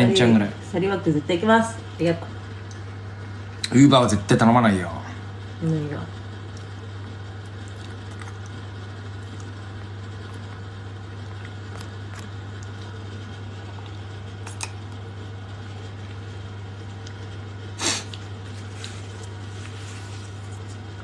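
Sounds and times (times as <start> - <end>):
constant low hum: 0.0 - 21.0.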